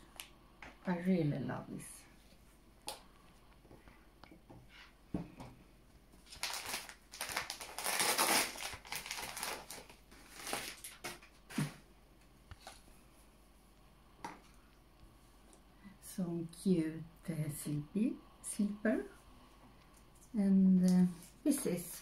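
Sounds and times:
wrapping paper crinkling: 6.2 - 11.3.

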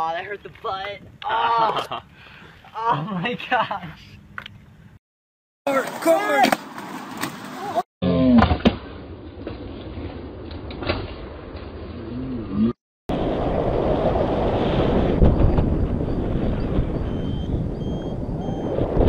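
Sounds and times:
wind buffeting microphone: 13.1 - 19.0.

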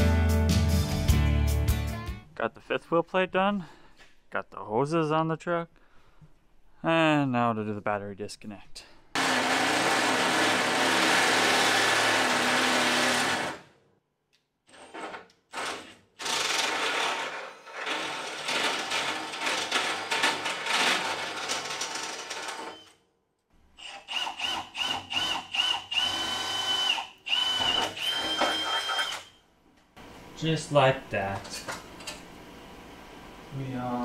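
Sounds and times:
cordless drill boring through metal: 9.2 - 13.6, 23.8 - 29.3
drill bit whining: 23.8 - 29.4.

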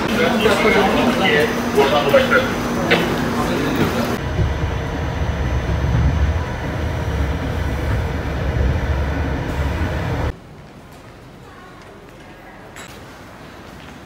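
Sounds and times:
train wheels rumbling on track: 0.0 - 10.4.

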